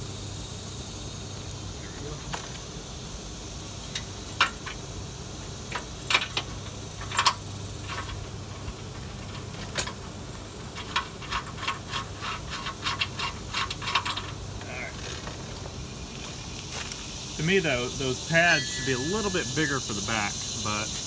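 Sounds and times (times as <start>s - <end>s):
steady low hum: 0.0s - 21.0s
bolts clinking against steel frame: 3.8s - 4.8s, 5.6s - 10.0s, 10.7s - 15.4s.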